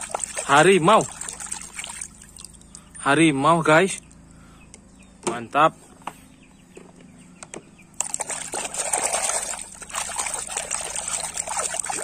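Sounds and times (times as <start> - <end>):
hand splashing in soapy water: 8.0 - 12.0.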